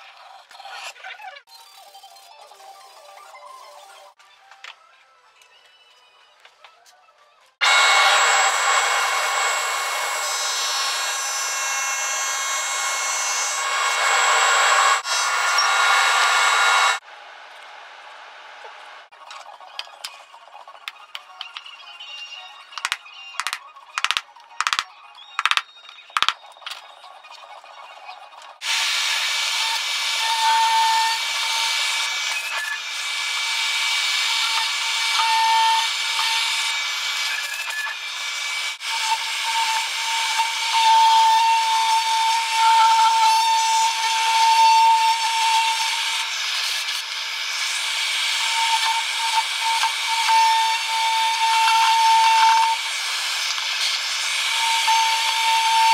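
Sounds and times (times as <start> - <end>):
table saw cutting wood: 7.6 - 17.0, 28.6 - 55.9.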